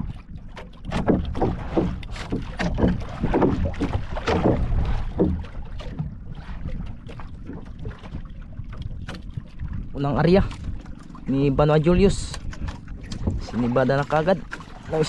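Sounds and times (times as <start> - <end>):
water splashing against boat hull: 0.0 - 15.0
wind rumbling on microphone: 0.0 - 15.0.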